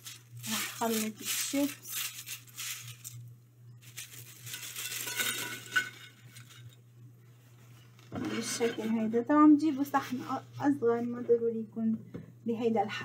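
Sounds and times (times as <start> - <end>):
crisp chips rustling and clinking: 0.0 - 6.8.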